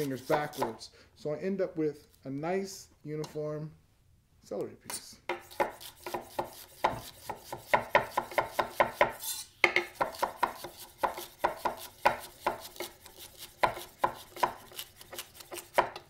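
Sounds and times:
knife slicing celery on board: 0.0s - 0.8s, 5.3s - 16.0s.

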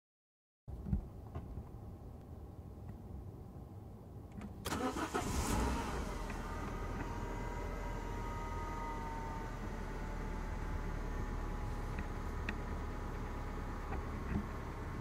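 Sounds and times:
car engine starting and idling: 4.4s - 15.0s
thin engine whine: 4.7s - 11.9s.

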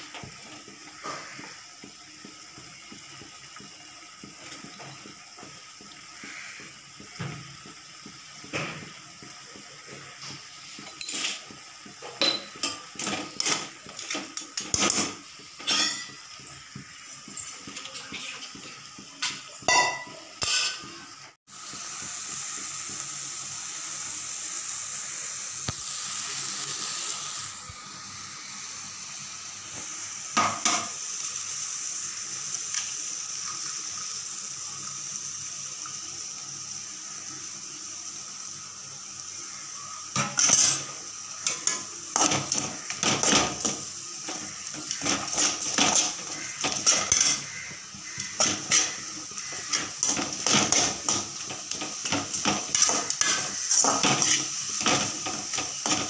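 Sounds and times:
greens sizzling in a pot: 0.0s - 56.0s
metal ladle scraping a pot: 40.3s - 43.7s, 44.3s - 56.0s.

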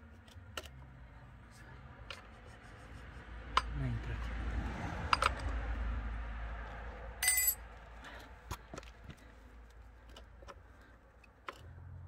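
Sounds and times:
ringing metal clink: 7.2s - 7.6s.

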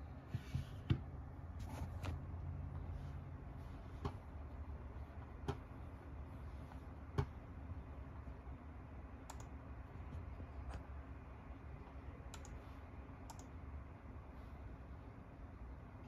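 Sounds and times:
low steady hum: 0.0s - 16.0s
computer clicks: 9.2s - 9.6s, 12.3s - 12.6s, 13.3s - 13.5s.

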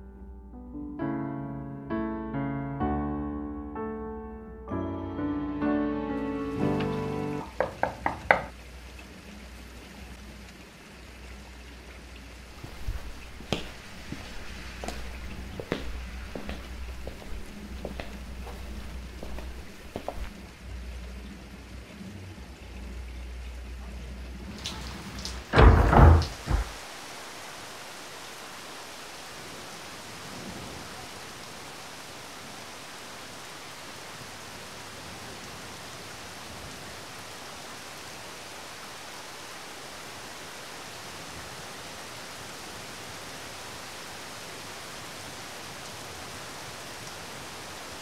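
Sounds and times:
rain-like outdoor hiss: 2.9s - 48.0s
door opening thuds: 24.6s - 26.8s.

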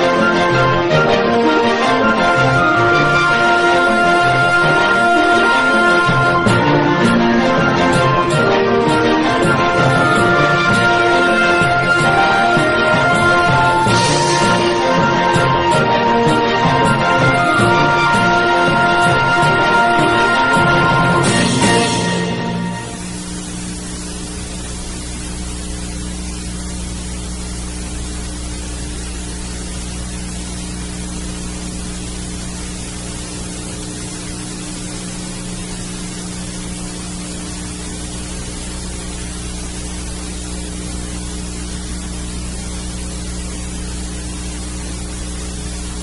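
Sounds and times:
low electrical hum: 0.0s - 46.0s
steady hiss: 0.0s - 46.0s.

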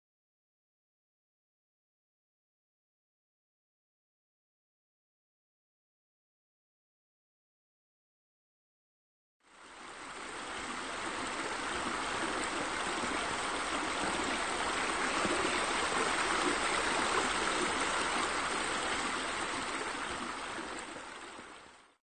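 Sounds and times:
running water rushing: 9.5s - 22.0s.

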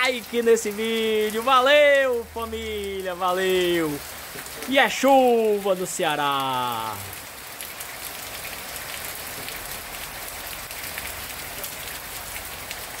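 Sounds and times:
heavy rain on pavement: 0.0s - 13.0s
raindrop taps: 9.2s - 9.6s.

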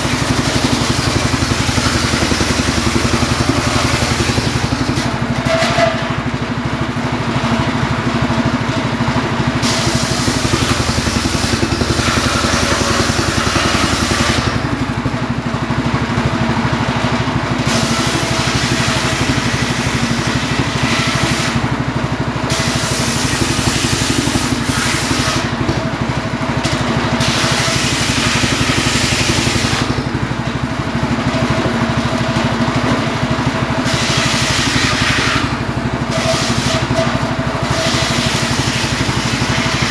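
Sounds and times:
saw blade cutting wood: 0.0s - 6.2s, 9.6s - 15.0s, 17.6s - 21.7s, 22.5s - 25.9s, 26.6s - 30.2s, 33.8s - 39.9s
engine running: 0.0s - 39.9s.

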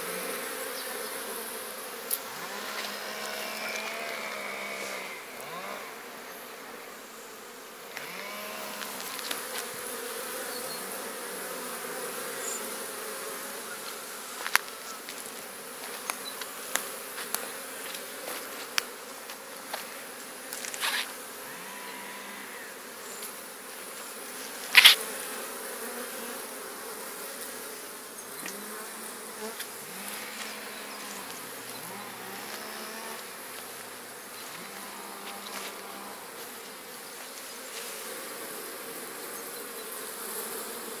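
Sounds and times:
bees buzzing: 0.0s - 41.0s.

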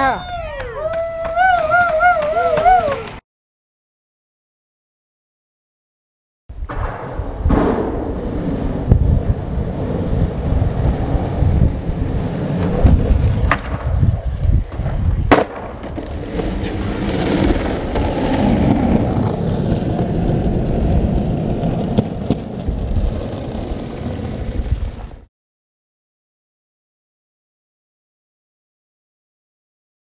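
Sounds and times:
wind buffeting microphone: 6.5s - 25.2s
sharp cracks: 13.2s - 16.2s.

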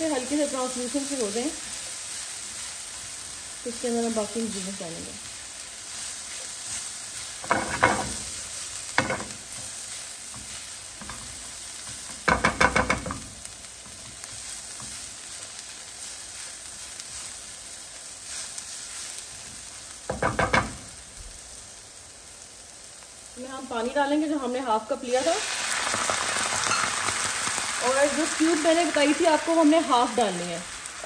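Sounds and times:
mushrooms and onions sizzling: 0.0s - 31.0s
spatula scraping a pan: 5.9s - 13.2s.

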